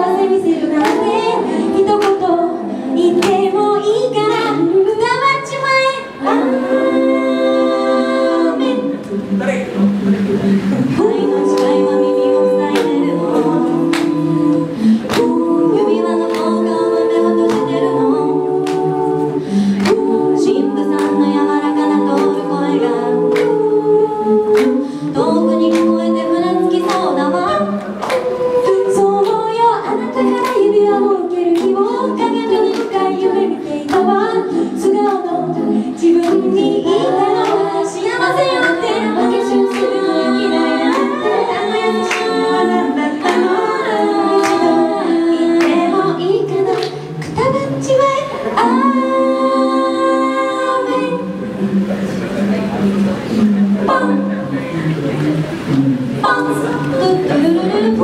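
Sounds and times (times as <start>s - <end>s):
women singing in harmony: 0.0s - 58.0s.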